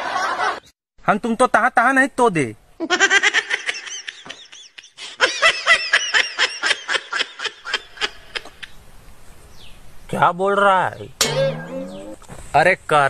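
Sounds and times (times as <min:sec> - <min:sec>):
high-pitched giggling laughter: 0:02.8 - 0:08.7.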